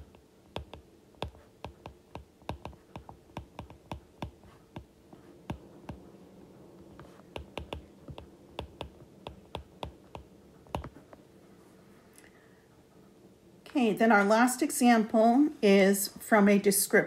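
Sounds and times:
stylus clicking on glass screen: 7.3 - 10.9.

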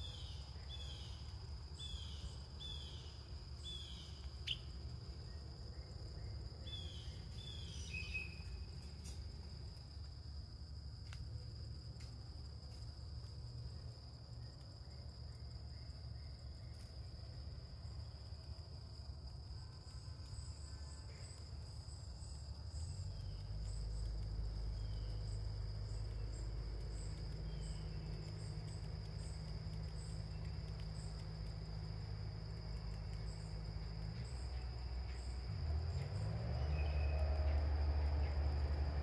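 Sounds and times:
crickets trilling: 0.0 - 39.0
faint high chirps: 1.8 - 8.8.

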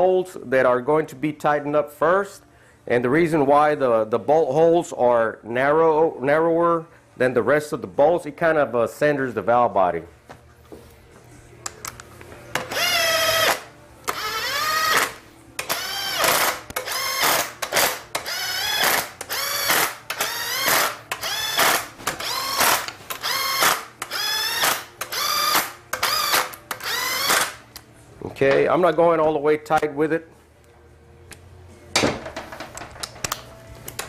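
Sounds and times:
cordless drill motor whine: 12.7 - 17.4, 18.2 - 27.5.

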